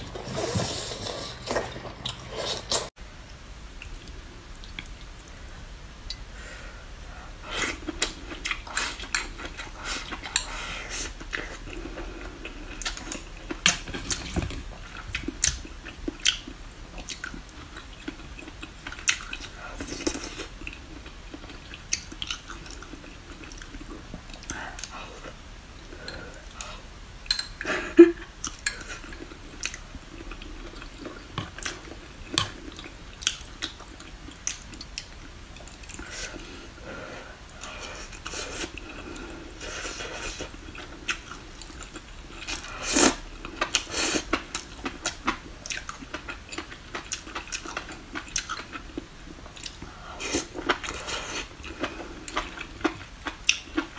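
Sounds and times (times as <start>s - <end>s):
chewing: 37.6s - 53.9s.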